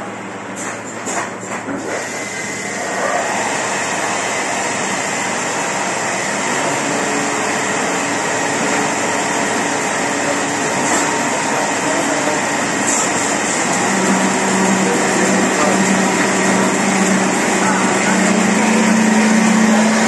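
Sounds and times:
printing press running: 0.0 - 20.0.

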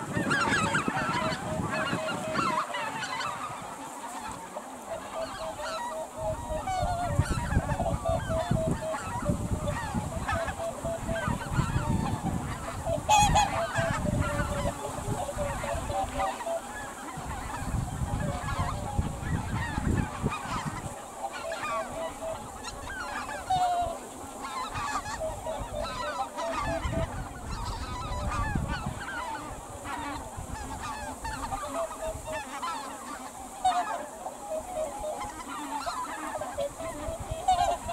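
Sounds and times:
geese honking: 0.0 - 37.9.

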